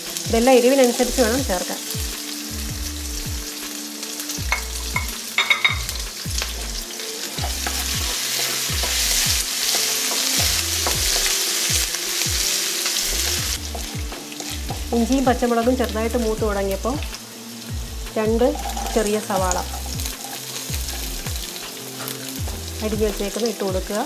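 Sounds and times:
food sizzling in hot oil: 0:00.0 - 0:24.0
wooden spatula scraping wok: 0:18.3 - 0:22.8.

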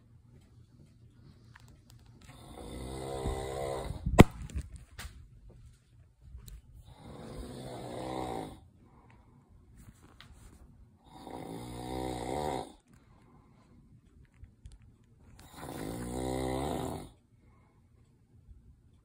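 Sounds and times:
loud pitched snoring: 0:02.3 - 0:04.0, 0:06.9 - 0:08.7, 0:11.0 - 0:12.8, 0:15.4 - 0:17.2.

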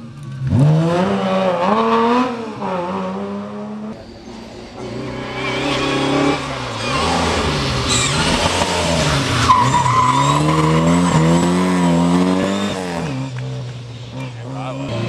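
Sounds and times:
rally car engine revving: 0:00.0 - 0:15.0
tyres squealing: 0:04.8 - 0:11.7.

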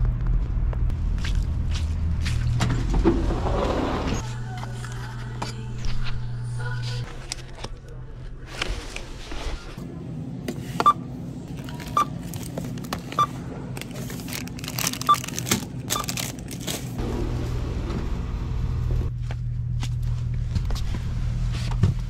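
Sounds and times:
plastic packaging crinkling: 0:13.7 - 0:17.0.

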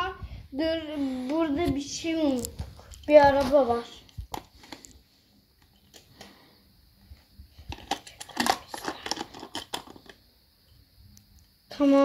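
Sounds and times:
toy car clicking against plastic: 0:07.7 - 0:10.2.

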